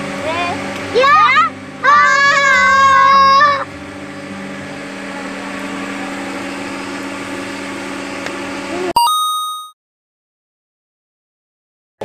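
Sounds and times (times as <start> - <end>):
motor humming: 0.0 - 9.0.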